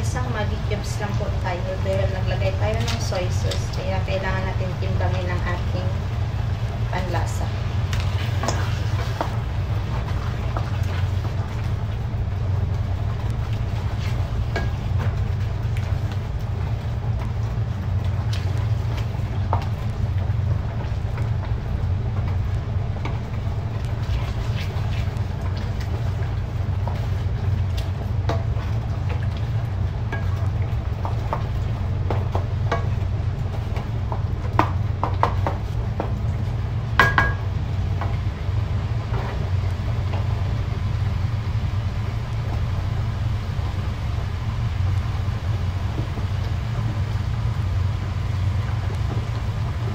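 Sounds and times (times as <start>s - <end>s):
steady low hum: 0.0s - 49.9s
wooden spoon stirring in metal pan: 0.1s - 44.4s
spoon knocking on pan: 37.0s - 37.5s.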